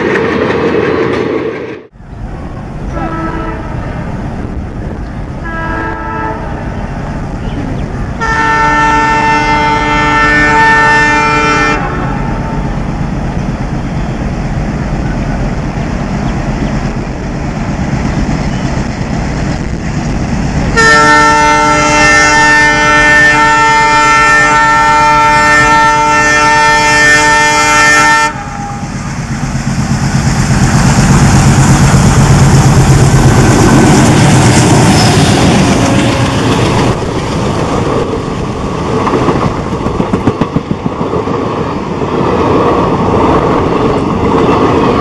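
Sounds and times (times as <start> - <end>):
train rumble and wheel noise: 0.0 - 45.0
locomotive horn blast: 2.9 - 4.1, 5.4 - 6.7, 8.2 - 12.6, 20.7 - 29.0.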